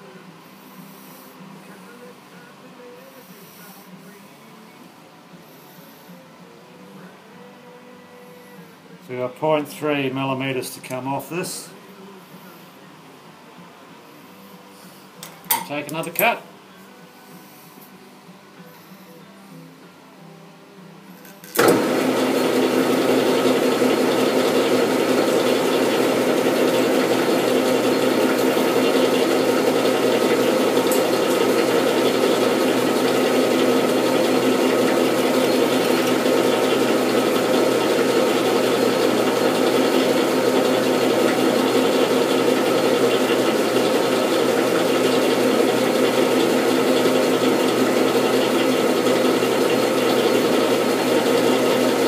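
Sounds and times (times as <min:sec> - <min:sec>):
metal lathe running: 0:21.5 - 0:52.0.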